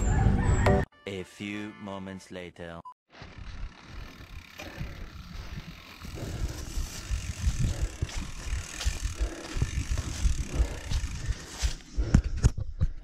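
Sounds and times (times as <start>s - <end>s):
bike knocking and rattling: 3.2s - 12.7s
bike freehub ratcheting: 3.3s - 11.9s.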